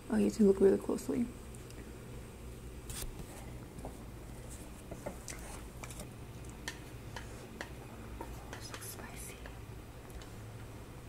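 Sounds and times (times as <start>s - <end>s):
chopsticks clicking in pot: 6.5s - 6.8s.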